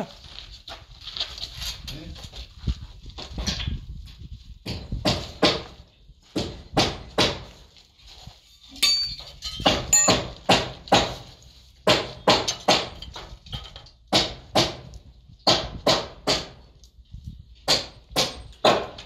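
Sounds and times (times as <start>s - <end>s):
hammer knocking on wood: 4.6s - 7.5s, 9.6s - 11.2s, 11.8s - 13.0s, 15.5s - 16.6s
ringing metallic clinks: 8.7s - 10.2s.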